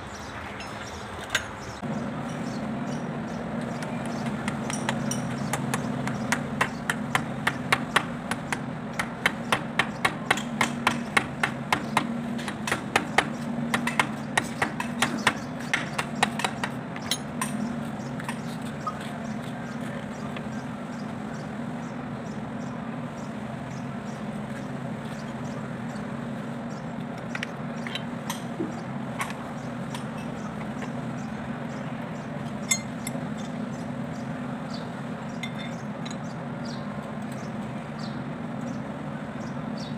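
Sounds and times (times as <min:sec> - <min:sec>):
sharp metal clicks and taps: 0:03.6 - 0:18.5
metal clinks: 0:32.6 - 0:33.2.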